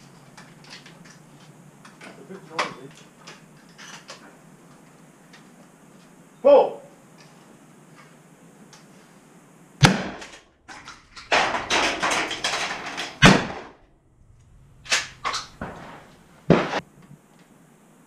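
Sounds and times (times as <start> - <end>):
shotgun shots: 9.8 - 10.4, 11.2 - 13.8, 14.8 - 16.8.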